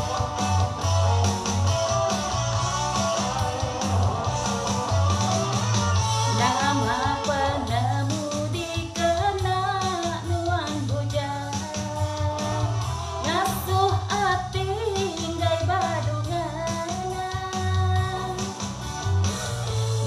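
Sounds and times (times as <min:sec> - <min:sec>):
karaoke backing track: 0:00.0 - 0:20.0
woman singing into a microphone: 0:06.3 - 0:18.6.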